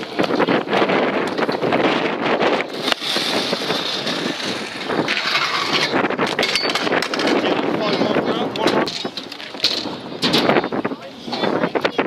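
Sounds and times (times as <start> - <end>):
scooter wheels rolling on asphalt: 0.0 - 12.0
wind on microphone: 0.0 - 12.0
scooter deck clicks and knocks: 5.1 - 10.6.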